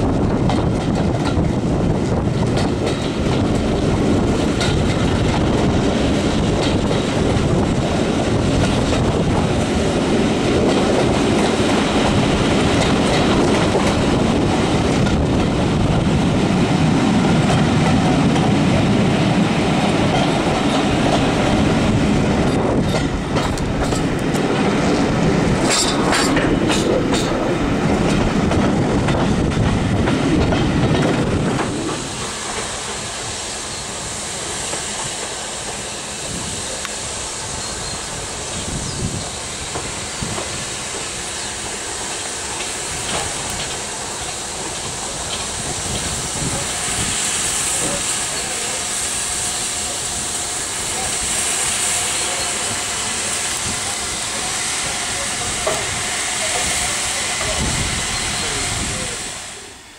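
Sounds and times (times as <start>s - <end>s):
train wheels rumbling and clattering: 0.0s - 59.9s.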